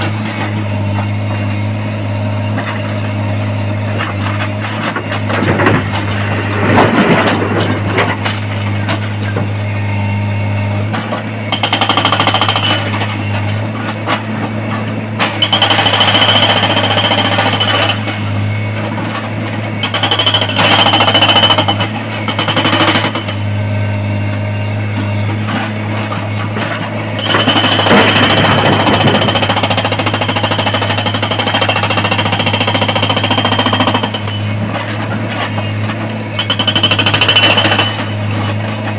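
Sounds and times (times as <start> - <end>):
hydraulic rock breaker hammering: 10.7 - 38.9.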